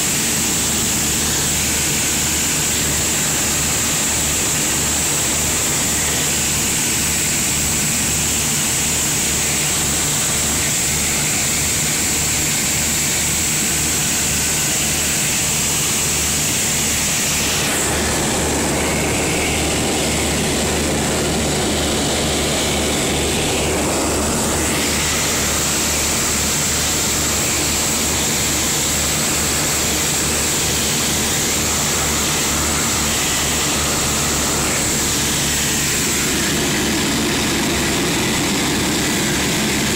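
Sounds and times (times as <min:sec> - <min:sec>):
aircraft engine cabin drone: 0:00.0 - 0:39.9
rushing noise: 0:14.3 - 0:39.9.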